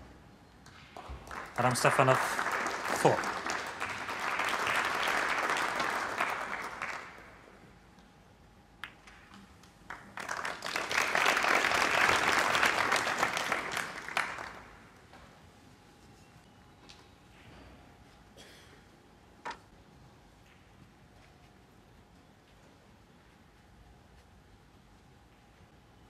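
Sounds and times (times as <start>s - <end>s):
crowd applauding: 1.0s - 7.4s, 9.9s - 14.9s.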